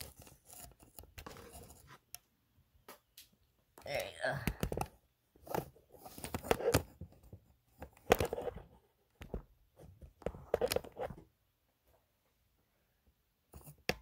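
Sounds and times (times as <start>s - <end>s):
rustling and knocking handling noise: 4.5s - 12.4s.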